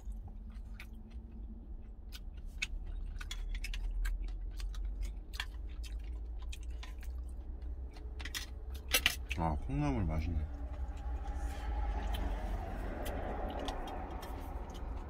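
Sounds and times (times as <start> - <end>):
chewing: 0.0 - 9.4, 10.2 - 15.0
low rumble: 7.2 - 15.0.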